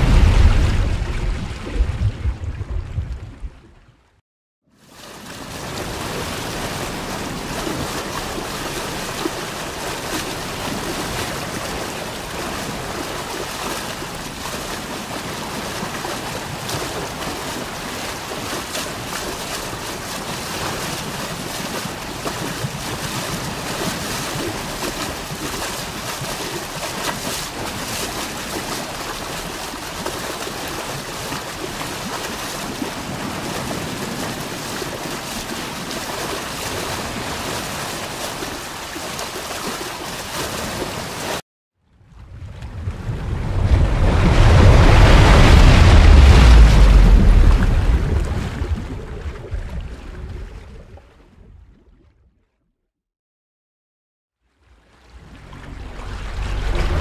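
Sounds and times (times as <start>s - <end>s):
short splashes: 4.8s - 41.4s
water rushing along hull: 4.8s - 41.4s, 42.6s - 50.7s, 54.6s - 57.0s
wind on microphone: 42.0s - 51.0s.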